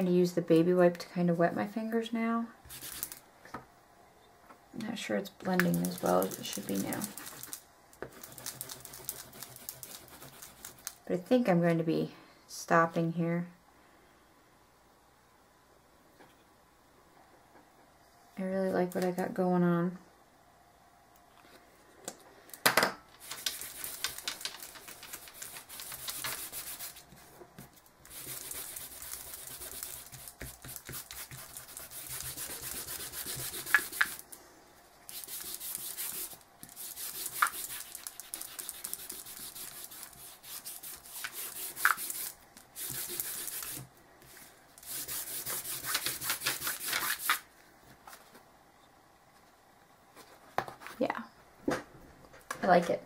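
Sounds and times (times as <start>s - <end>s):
hands rubbing on board: 23.2s - 27.2s, 28.1s - 34.2s, 35.1s - 43.8s.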